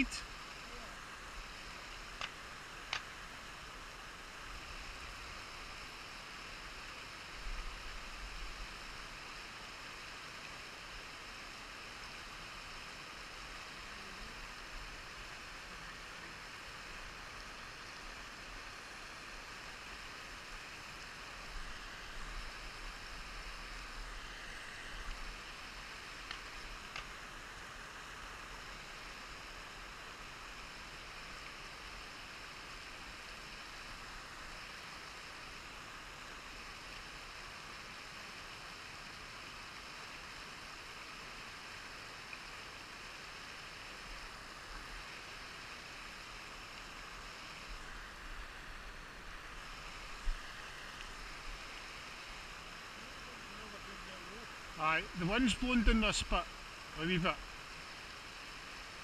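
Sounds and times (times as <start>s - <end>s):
outdoor background hiss: 0.0s - 59.0s
faint clicks: 2.2s - 3.1s, 26.2s - 27.1s.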